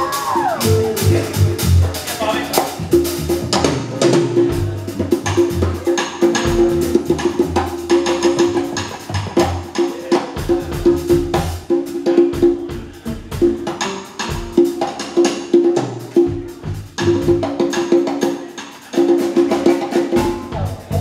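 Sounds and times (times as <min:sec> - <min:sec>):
acoustic band playing: 0:00.0 - 0:21.0.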